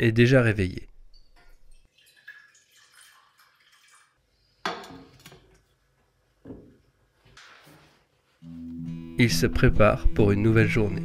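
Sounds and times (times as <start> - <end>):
liquid pouring into saucepan: 1.4 - 4.2.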